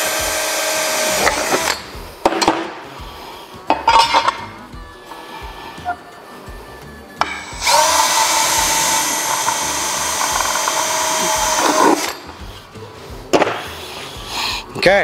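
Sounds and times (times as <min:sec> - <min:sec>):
cordless drill drilling metal: 0:00.0 - 0:01.9, 0:07.2 - 0:12.2.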